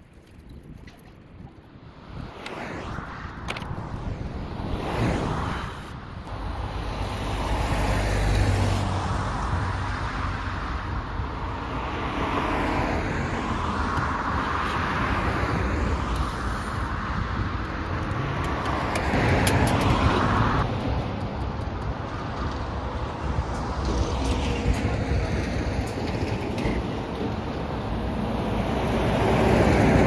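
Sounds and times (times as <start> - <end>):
vehicles passing: 0.2 - 30.0.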